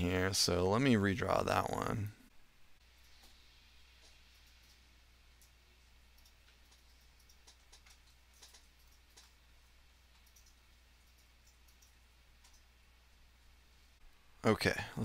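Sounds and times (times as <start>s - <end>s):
low steady hum: 0.0s - 15.0s
mouse and keyboard clicks: 6.2s - 9.4s, 10.1s - 12.7s.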